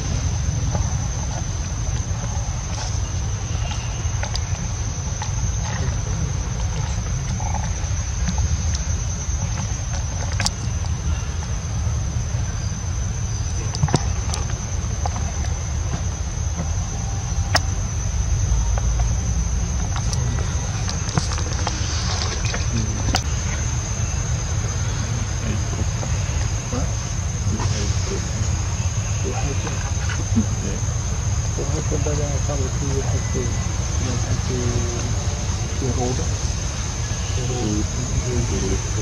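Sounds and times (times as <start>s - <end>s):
high-pitched whine: 0.0s - 39.0s
low rumble: 0.0s - 39.0s.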